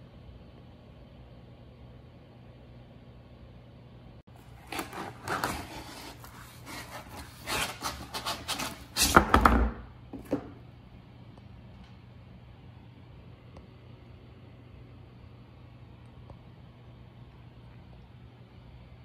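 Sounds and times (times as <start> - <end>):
cardboard and plastic rustling: 4.4 - 9.2.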